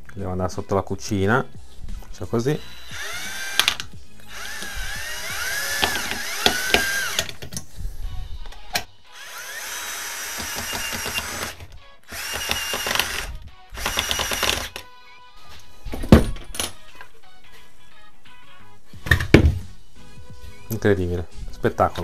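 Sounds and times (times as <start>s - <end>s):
cordless drill whining: 2.5s - 7.4s, 9.1s - 14.8s.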